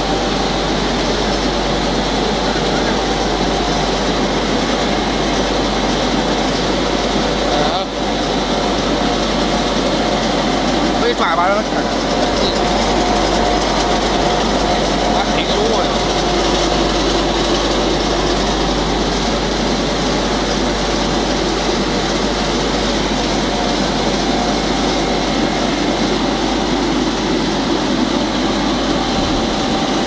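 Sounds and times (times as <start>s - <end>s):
constant high whine: 0.0s - 30.0s
factory machinery running: 0.0s - 30.0s.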